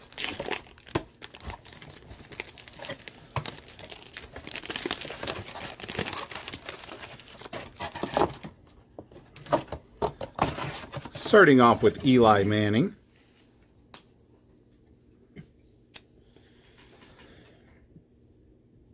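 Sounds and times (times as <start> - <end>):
foil wrapper crinkling: 0.0 - 8.6.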